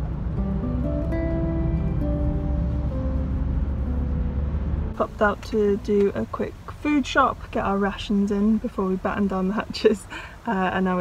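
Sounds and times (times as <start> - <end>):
background music with held notes: 0.0 - 5.6
steady low rumble: 0.0 - 9.9.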